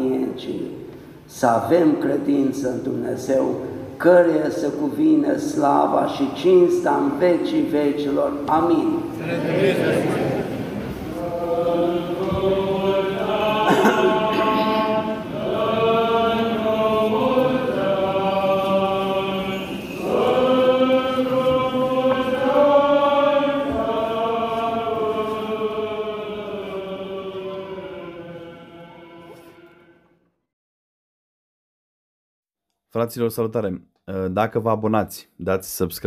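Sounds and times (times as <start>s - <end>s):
choir chanting long notes: 9.0s - 30.2s.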